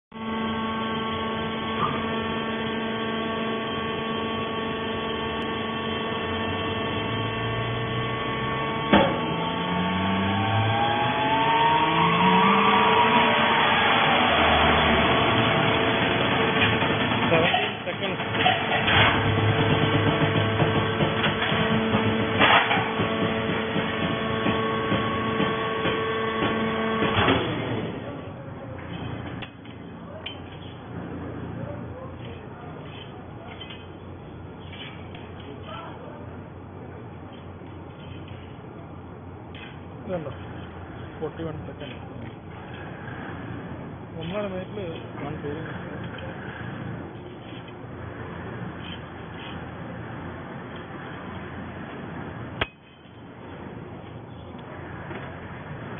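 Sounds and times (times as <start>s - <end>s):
rising whine: 0.1s - 28.4s
hydraulic pump motor hum: 0.1s - 55.9s.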